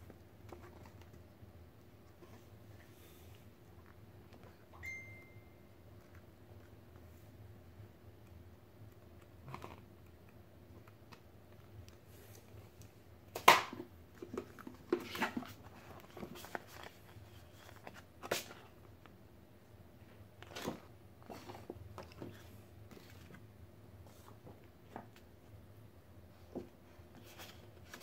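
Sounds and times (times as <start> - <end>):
paper pages flipping and rustling: 14.2 - 18.7, 20.4 - 23.4, 27.1 - 28.0.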